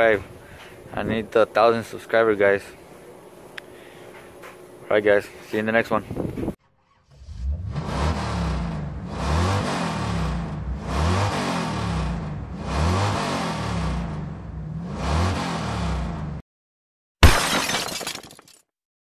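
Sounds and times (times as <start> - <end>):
car engine revving: 6.8 - 16.4.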